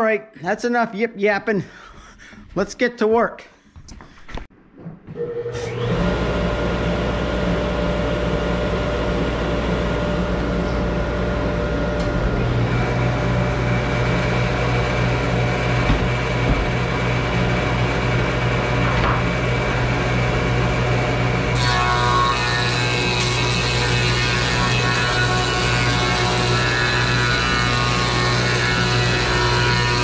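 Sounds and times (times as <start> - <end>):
higher machine whine: 5.1 - 22.4.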